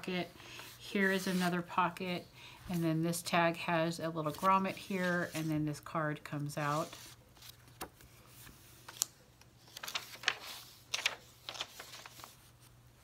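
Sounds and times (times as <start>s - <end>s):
paper rustling and tapping: 9.7s - 12.3s.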